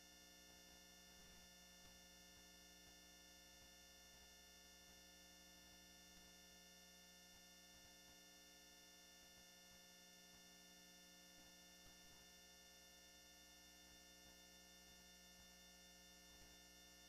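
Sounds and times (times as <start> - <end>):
faint electrical hum: 0.0 - 17.0.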